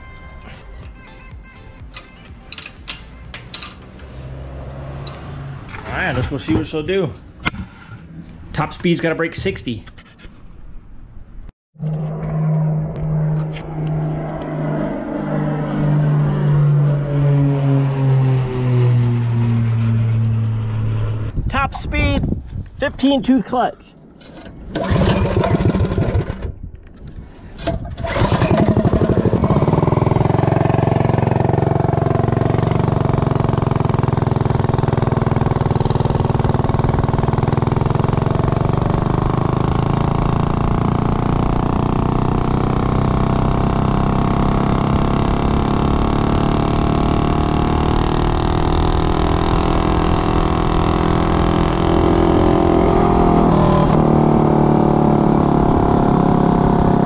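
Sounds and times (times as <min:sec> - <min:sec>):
minibike engine at full throttle: 0:24.4 - 0:26.6, 0:27.6 - 0:57.0.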